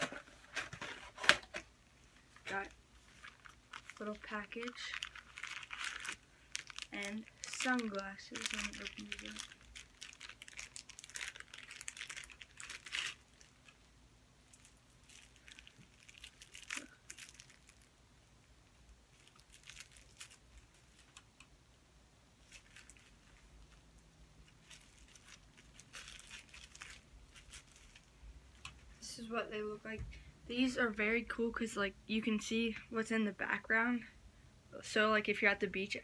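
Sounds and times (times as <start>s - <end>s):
plastic packaging crinkling and tearing: 0.0s - 13.9s, 14.5s - 17.9s, 19.1s - 21.2s, 22.4s - 28.8s.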